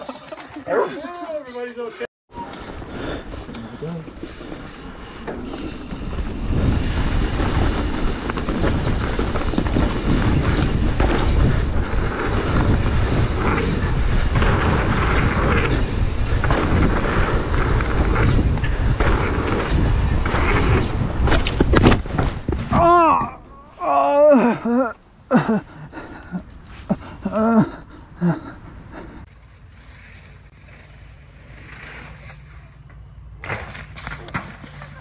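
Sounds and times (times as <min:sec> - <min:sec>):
tyres rumbling on dirt: 0:02.3 - 0:29.3
wind buffeting microphone: 0:02.5 - 0:23.4
bike rattling: 0:02.6 - 0:29.2, 0:29.8 - 0:35.0.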